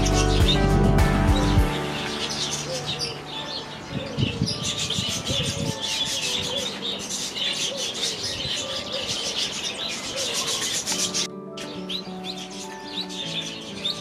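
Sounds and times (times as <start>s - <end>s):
small birds chirping and twittering: 0.0s - 14.0s.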